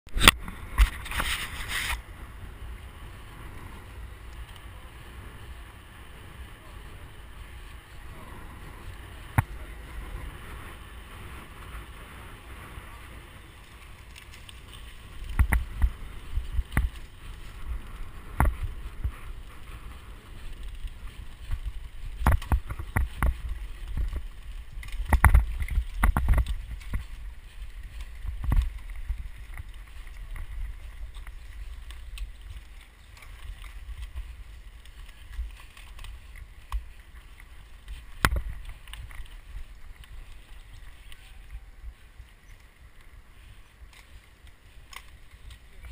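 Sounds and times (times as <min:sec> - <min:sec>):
bicycle tyre noise: 0:00.1 - 0:45.9
wind rumbling on microphone: 0:00.1 - 0:45.9
bike knocks and rattles: 0:08.6 - 0:41.0.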